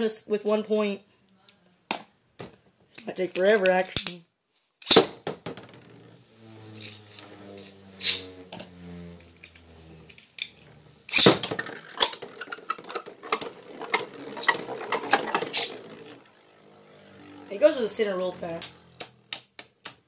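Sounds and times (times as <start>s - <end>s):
spinning tops whirring: 4.8s - 20.0s
tops clacking together: 18.6s - 20.0s.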